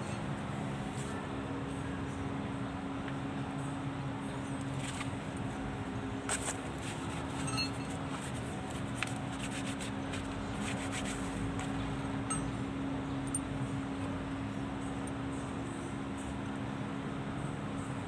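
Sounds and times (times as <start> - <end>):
steady hum: 0.0 - 18.0
light metallic clinks: 7.4 - 8.0, 12.2 - 12.6.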